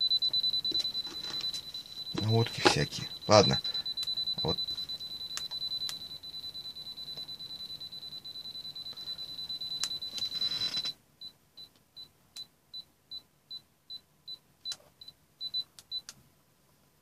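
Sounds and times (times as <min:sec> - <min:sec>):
voltage detector beeping: 0:00.0 - 0:11.0.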